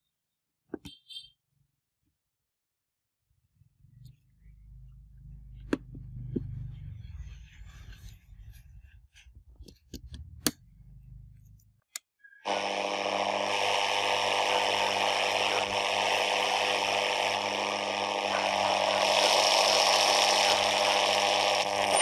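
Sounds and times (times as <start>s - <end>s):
low hum: 12.5s - 22.0s
radio static hiss: 12.5s - 22.0s.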